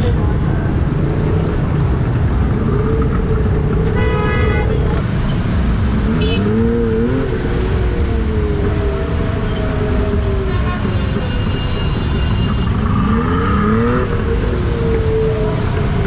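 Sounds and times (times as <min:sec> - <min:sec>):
low rumble of engines: 0:00.0 - 0:16.0
engine revving: 0:05.0 - 0:16.0.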